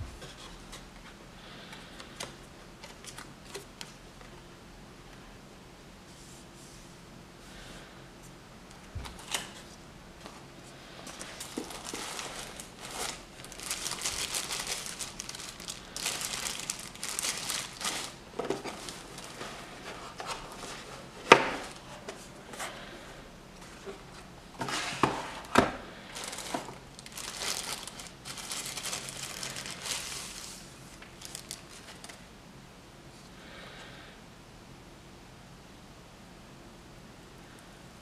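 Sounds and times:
cardboard packaging rustling: 8.9 - 22.8, 23.6 - 32.2
plastic wrapping crinkling: 11.0 - 22.1, 24.6 - 32.2.

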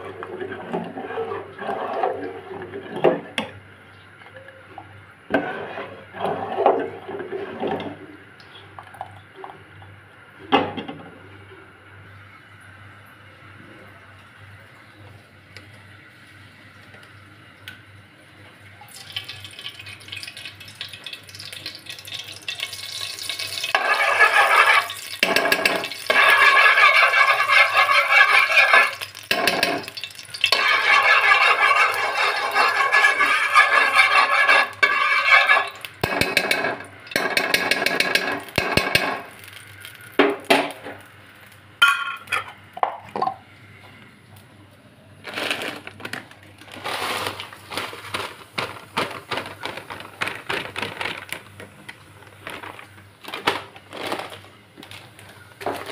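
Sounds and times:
metal spoon scraping pot: 23.7 - 39.2.

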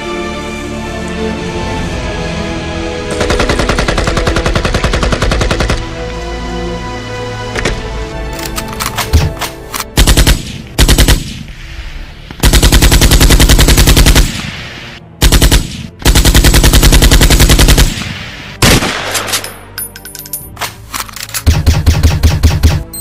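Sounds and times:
automatic gunfire bursts: 12.4 - 14.3.

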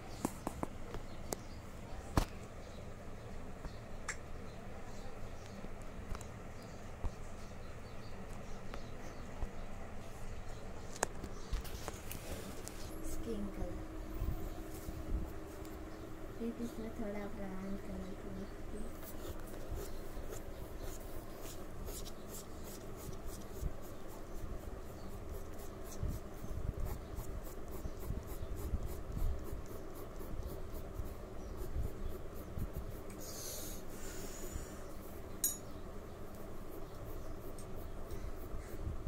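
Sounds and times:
pencil sketching on paper: 18.9 - 33.9.

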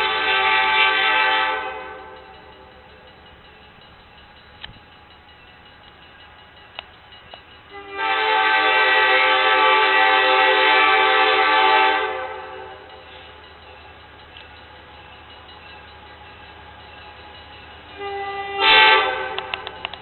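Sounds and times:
train horn long blast: 0.0 - 2.3, 7.7 - 12.9, 17.9 - 19.9.

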